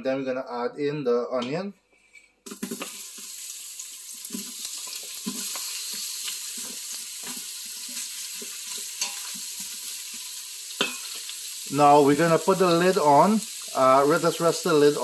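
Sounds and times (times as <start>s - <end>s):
onion sizzling in hot oil: 2.4s - 15.0s
wooden spoon scraping a pot: 4.2s - 11.3s.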